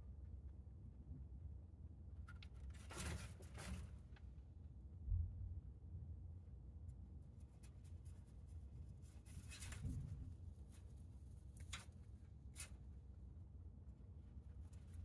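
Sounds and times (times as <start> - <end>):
low steady hum: 0.0 - 15.0
rabbit crunching hay: 2.3 - 4.2, 7.2 - 13.3.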